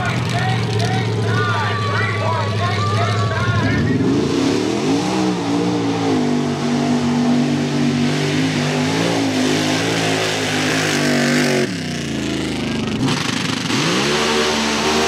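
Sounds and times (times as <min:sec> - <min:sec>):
truck engine revving hard: 0:03.4 - 0:15.0.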